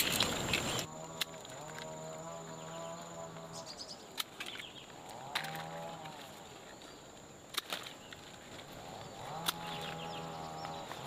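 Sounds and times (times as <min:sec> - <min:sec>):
high insect drone: 0:00.0 - 0:11.0
pruning shears snipping stems: 0:04.1 - 0:06.4, 0:07.5 - 0:11.0
farm animal calling: 0:08.8 - 0:11.0.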